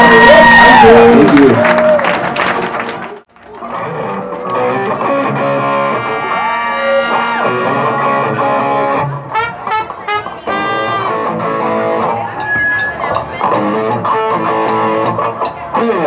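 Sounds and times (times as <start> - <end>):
electric guitar plucked notes: 3.7 - 16.0
rock band playing: 3.7 - 16.0.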